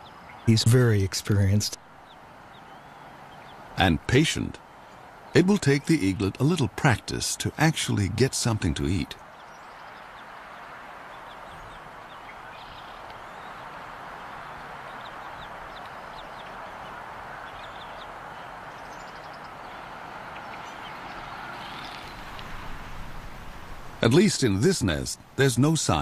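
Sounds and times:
wind noise: 0:20.2 - 0:24.2.

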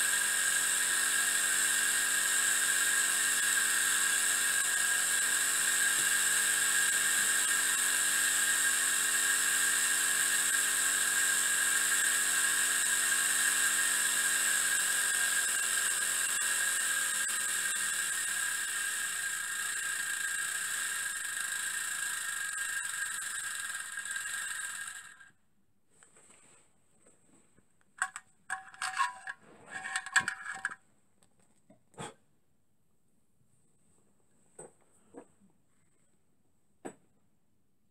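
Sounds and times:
miniature steam engine whining: 0:00.0 - 0:25.3, 0:28.0 - 0:30.8.

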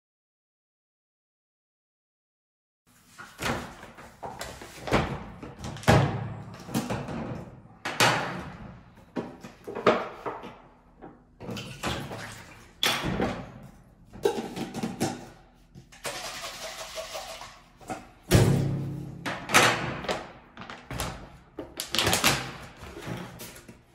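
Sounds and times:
plastic cup knocking and clattering: 0:14.2 - 0:15.3.

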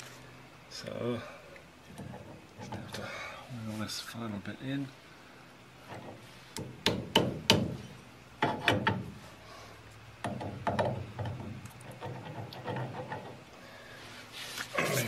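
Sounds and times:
sharp knocks: 0:06.0 - 0:07.8
metal splines clicking and clunking: 0:10.2 - 0:13.4.

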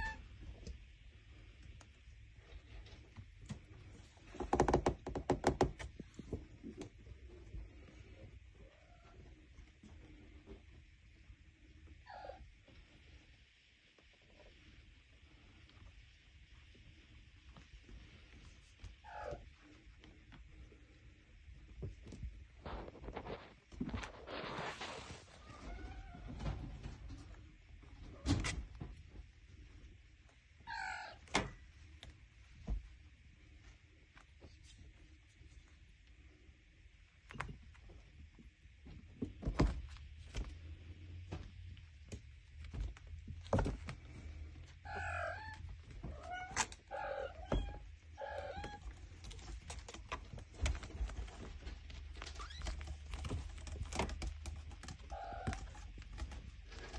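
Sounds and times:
kittens scuffling: 0:13.9 - 0:30.5, 0:31.6 - 0:56.9.

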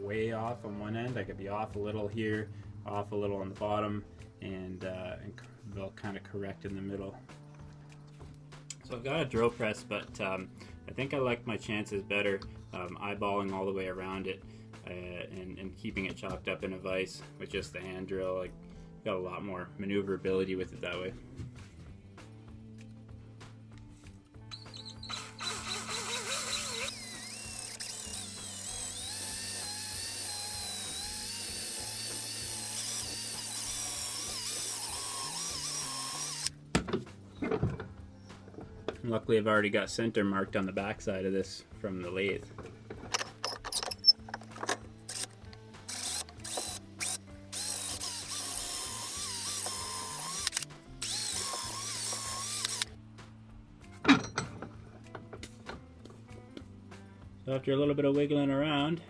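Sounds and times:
cordless drill boring into wood: 0:24.5 - 0:36.6, 0:45.1 - 0:53.0.

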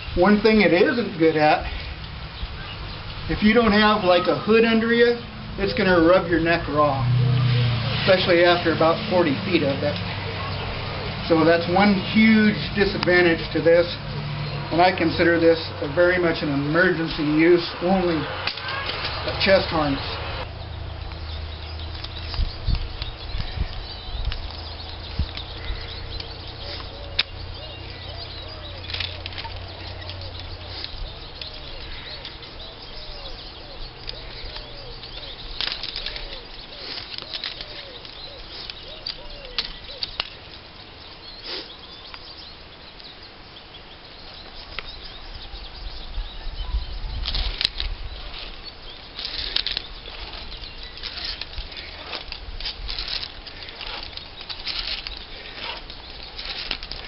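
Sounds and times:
clicks of rope ascenders: 0:00.0 - 0:43.2, 0:47.2 - 0:57.0
rustling and flapping of gear: 0:21.0 - 0:42.5, 0:46.8 - 0:57.0.

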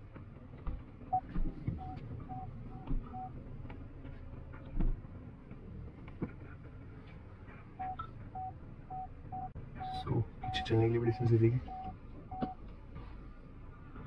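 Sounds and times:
low cabin rumble: 0:00.0 - 0:14.0
parking sensor beeping: 0:01.1 - 0:03.4, 0:07.8 - 0:12.6.

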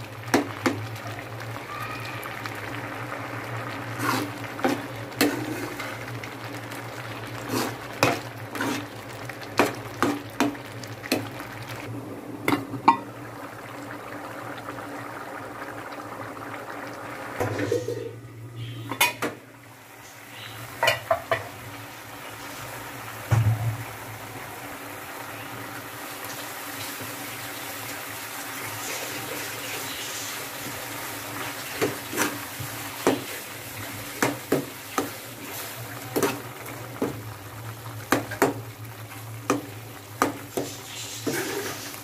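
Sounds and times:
curry sizzling: 0:00.0 - 0:42.0
spoon scraping metal pot: 0:04.0 - 0:05.9, 0:07.5 - 0:08.9, 0:40.6 - 0:42.0.

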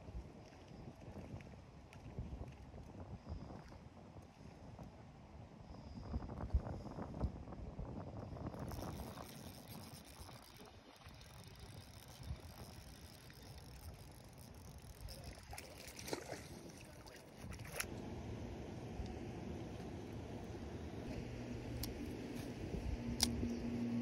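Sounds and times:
wind rumbling on microphone: 0:00.0 - 0:24.0
faint ticks and clicks: 0:08.5 - 0:15.9.

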